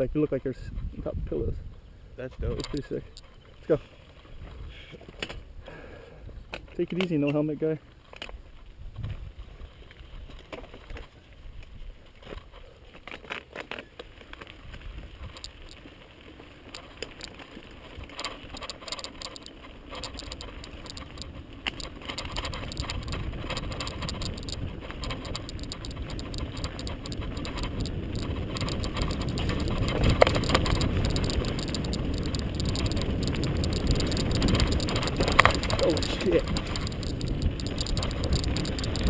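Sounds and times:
bike tyres on loose dirt: 0:00.0 - 0:39.0
bike rattling over bumps: 0:06.4 - 0:39.0
low rumble: 0:20.3 - 0:39.0.

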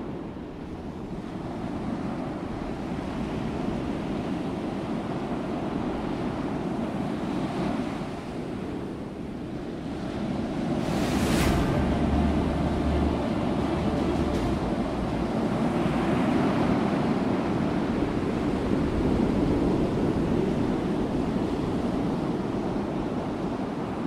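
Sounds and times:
steady rushing noise: 0:10.1 - 0:21.4
swift whoosh: 0:10.7 - 0:15.1.

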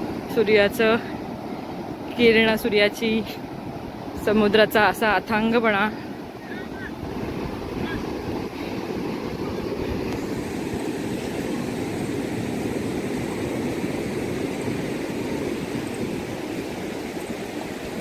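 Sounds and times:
surf breaking on a beach: 0:00.0 - 0:18.0
wind rumble on microphone: 0:06.4 - 0:18.0.

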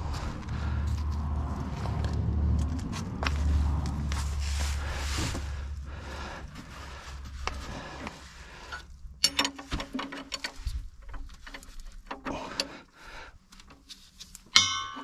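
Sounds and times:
wrench clicking on metal: 0:09.2 - 0:10.6.

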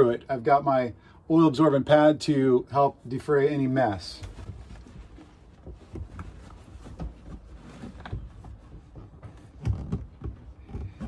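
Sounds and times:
absorbent pad rustling: 0:03.9 - 0:11.0.

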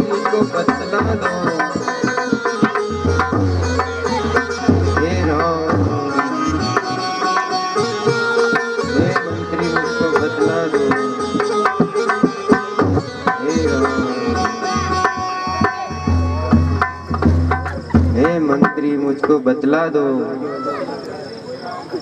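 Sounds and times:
hand drums playing quick rhythm: 0:00.0 - 0:19.4
melody instrument: 0:02.6 - 0:10.2.

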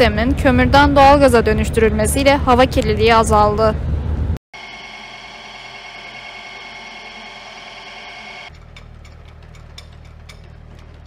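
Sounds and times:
pipe threading machine whine: 0:04.6 - 0:11.0.

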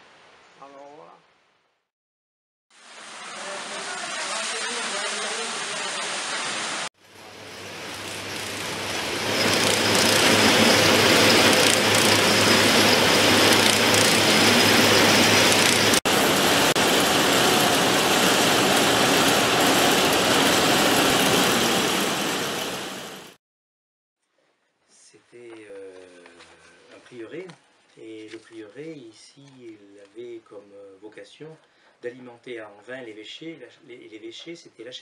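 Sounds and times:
water splashing onto water wheel: 0:02.8 - 0:06.8
textile machines clattering: 0:08.0 - 0:22.2.

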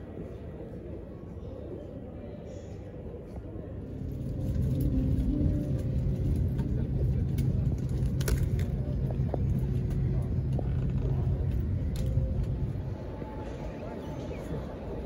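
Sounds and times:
airliner cabin rumble: 0:03.7 - 0:15.0.

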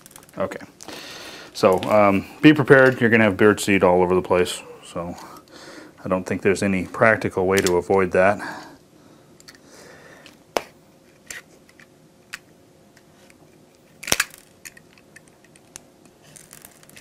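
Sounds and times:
plastic crinkling and scraping: 0:16.2 - 0:17.0.

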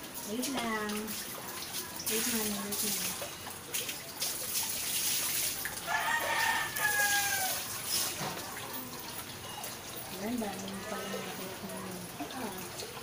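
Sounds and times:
water splashing and dripping: 0:00.0 - 0:13.0
rooster crowing: 0:05.8 - 0:07.7, 0:10.7 - 0:11.5.

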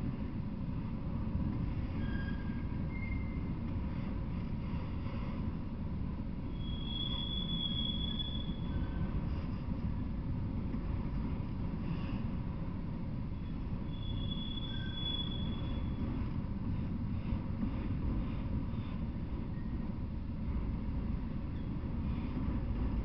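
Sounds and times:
train wheels rumbling on rail: 0:00.0 - 0:23.0
high wheel squeal: 0:02.0 - 0:03.5, 0:06.5 - 0:09.2, 0:13.4 - 0:16.1.

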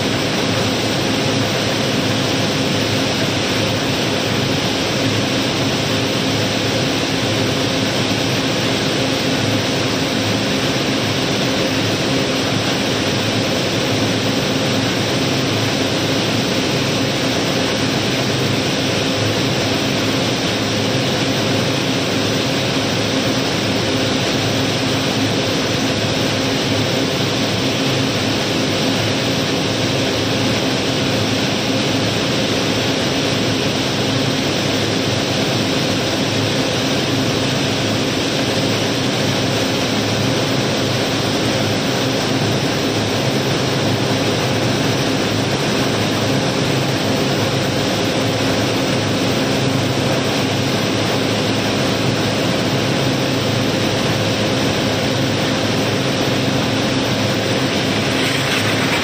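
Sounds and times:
gravel pouring down a chute: 0:57.7 - 0:59.0.

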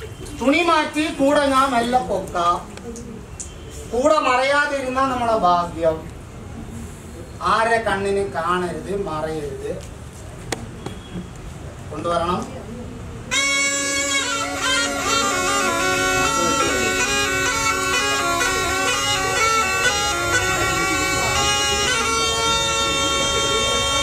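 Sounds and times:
reed pipe melody over drone: 0:13.3 - 0:24.0.

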